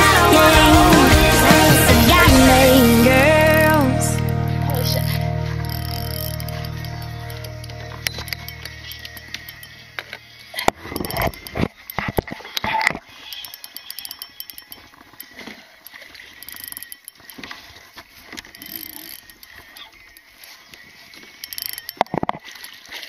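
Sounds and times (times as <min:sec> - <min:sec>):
fishing reel clicking: 0:04.8 - 0:23.0.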